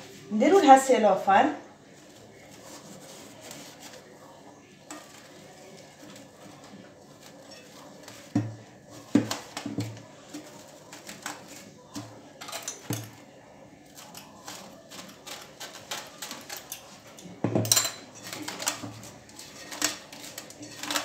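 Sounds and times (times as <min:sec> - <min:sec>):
cling film crinkling: 0:13.8 - 0:17.1.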